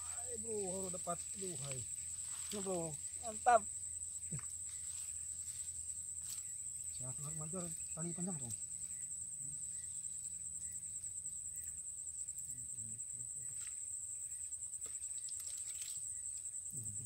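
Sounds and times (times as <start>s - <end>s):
high-pitched insect trill: 0.0s - 17.0s.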